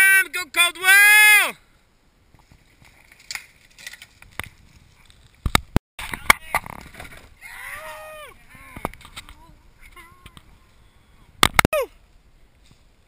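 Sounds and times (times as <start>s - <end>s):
mountain bike rattling over rocks: 2.4s - 7.4s.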